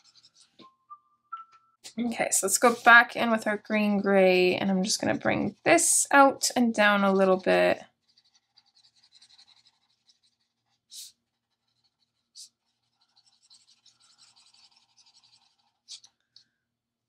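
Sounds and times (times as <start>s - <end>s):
marker scratching on paper: 0.0s - 0.6s, 2.5s - 3.0s, 7.0s - 16.2s.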